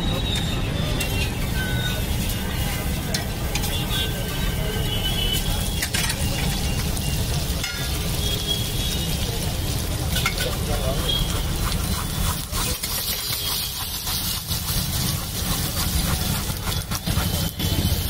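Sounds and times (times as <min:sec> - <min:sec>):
eggs sizzling on a griddle: 0:00.4 - 0:18.0
spatula clicks and scrapes: 0:10.1 - 0:17.7.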